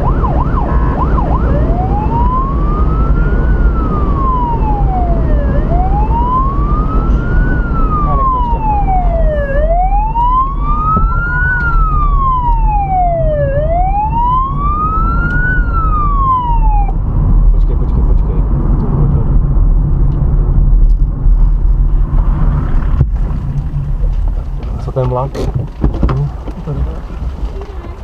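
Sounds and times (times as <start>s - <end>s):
police siren wailing: 0.0s - 17.0s
road and engine rumble: 0.0s - 28.0s.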